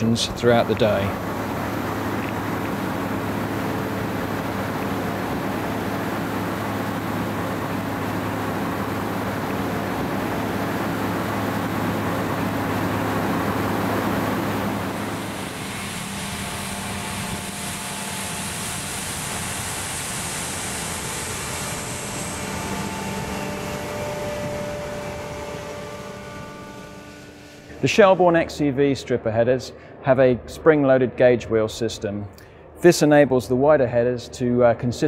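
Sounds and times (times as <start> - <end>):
combine harvester drone: 0.0 - 35.0.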